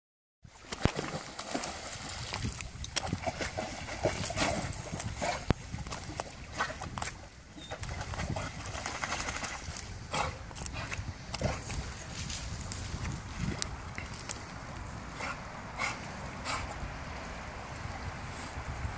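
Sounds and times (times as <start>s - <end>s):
dog swimming: 0.5s - 12.1s
dog splashing into river: 0.6s - 7.0s, 7.7s - 10.0s.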